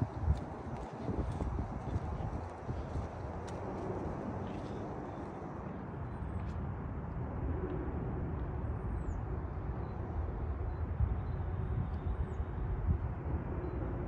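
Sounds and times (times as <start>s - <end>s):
distant traffic: 0.0s - 14.0s
wind: 0.0s - 14.0s.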